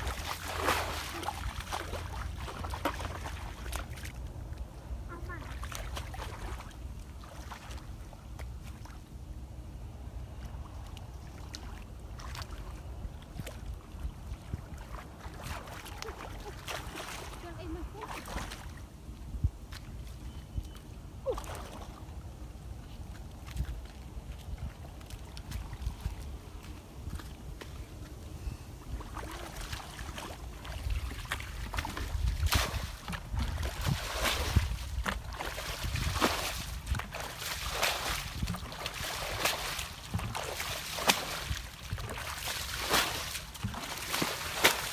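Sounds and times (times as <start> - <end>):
water splashing from bucket: 0.0 - 4.1, 29.1 - 44.9
muddy water splashing: 0.0 - 44.9
wind rumble on microphone: 0.0 - 44.9.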